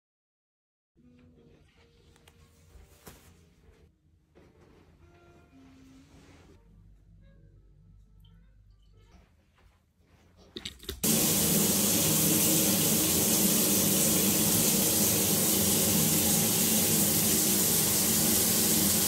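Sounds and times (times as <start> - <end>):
shower running: 11.0 - 19.0.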